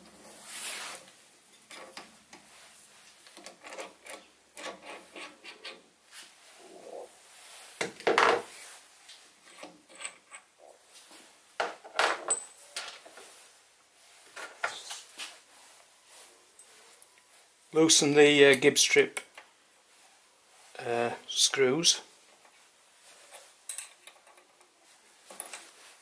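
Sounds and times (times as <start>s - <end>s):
metal scraping and clicking: 3.2s - 5.8s.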